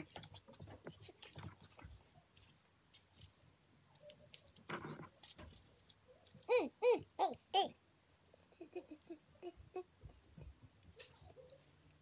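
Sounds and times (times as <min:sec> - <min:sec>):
rustling: 0:00.0 - 0:07.0.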